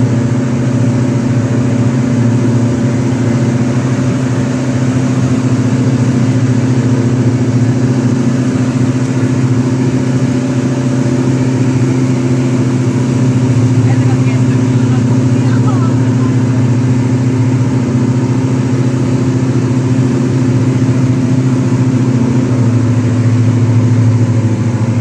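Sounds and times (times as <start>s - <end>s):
aircraft engine and propeller drone: 0.0s - 25.0s.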